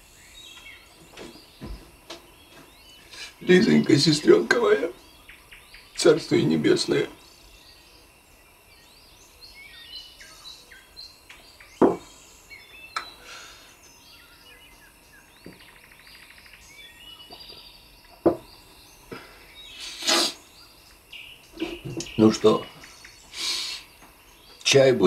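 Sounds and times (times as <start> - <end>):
birds chirping: 0.0 - 25.0
insects: 0.0 - 25.0
glass set down on table: 11.8 - 12.0, 18.2 - 18.5.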